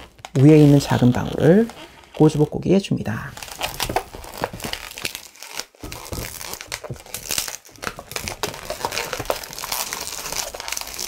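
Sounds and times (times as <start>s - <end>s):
balloon rubber creaking: 0.0s - 11.0s.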